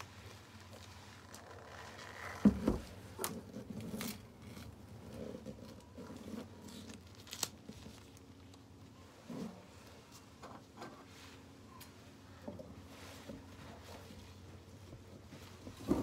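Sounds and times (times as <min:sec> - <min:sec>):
plastic crinkling: 0:00.0 - 0:02.5, 0:03.2 - 0:09.0.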